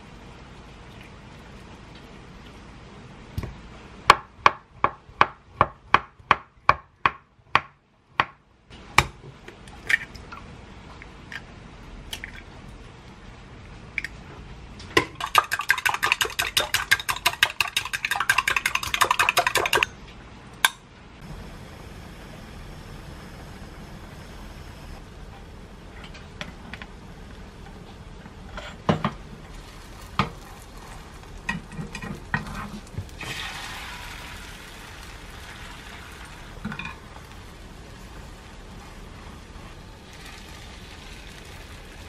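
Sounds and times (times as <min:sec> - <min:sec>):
eggs whisked in glass cup: 0:15.1 - 0:19.9
egg sizzling in pan: 0:29.4 - 0:42.0.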